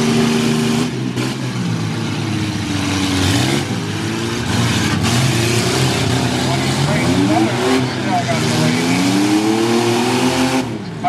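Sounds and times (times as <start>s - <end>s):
racing truck engines revving: 0.0s - 11.0s.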